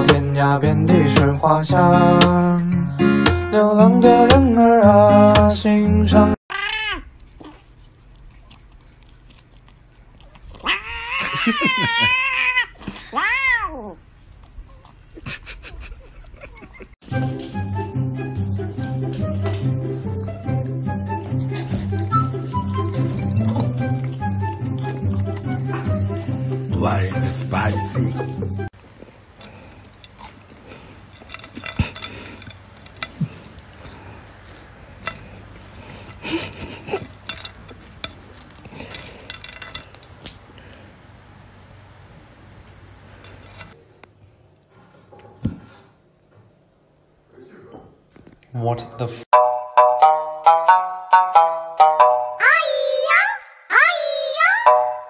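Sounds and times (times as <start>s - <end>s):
cat meowing: 6.5s - 7.6s, 10.6s - 14.0s.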